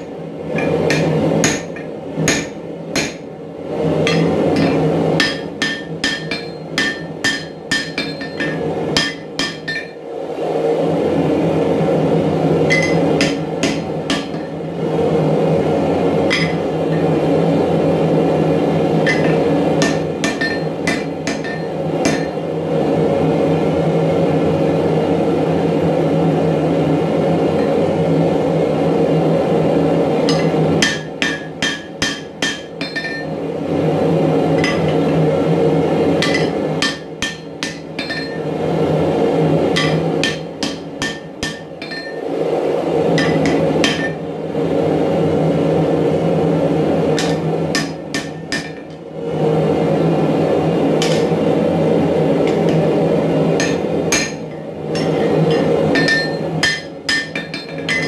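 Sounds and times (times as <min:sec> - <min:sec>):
hammer striking hot metal on anvil: 0:00.0 - 0:03.3, 0:04.0 - 0:10.0, 0:12.7 - 0:14.6, 0:16.3 - 0:17.1, 0:19.0 - 0:22.4, 0:30.3 - 0:33.4, 0:34.6 - 0:35.1, 0:36.2 - 0:38.5, 0:39.7 - 0:42.2, 0:43.2 - 0:44.2, 0:47.2 - 0:49.0, 0:51.0 - 0:51.4, 0:53.6 - 0:58.0.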